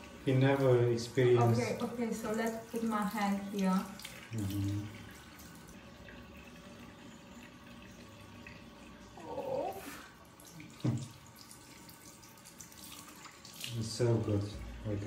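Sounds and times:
tap running into basin: 0:10.3 - 0:15.0.

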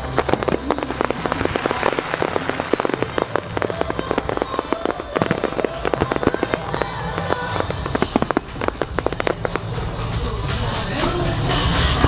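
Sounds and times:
fireworks bangs and pops: 0:00.0 - 0:12.0.

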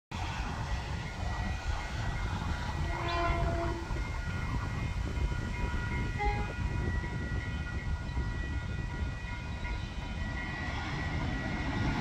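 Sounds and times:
train horn: 0:02.7 - 0:04.0, 0:06.1 - 0:06.7.

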